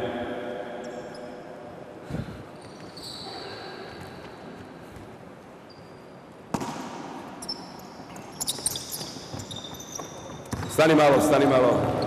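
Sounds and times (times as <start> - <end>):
sneaker squeaks on floor: 2.6 - 4.2, 5.6 - 6.7, 7.4 - 12.0.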